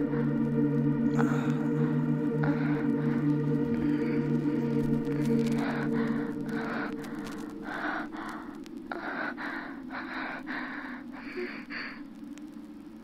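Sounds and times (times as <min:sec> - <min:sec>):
organ chord: 0:00.0 - 0:07.9
person breathing heavily: 0:00.0 - 0:12.2.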